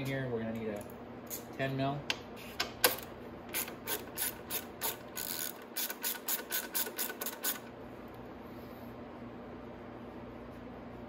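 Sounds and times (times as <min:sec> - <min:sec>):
ratchet wrench clicking: 0:03.5 - 0:07.7.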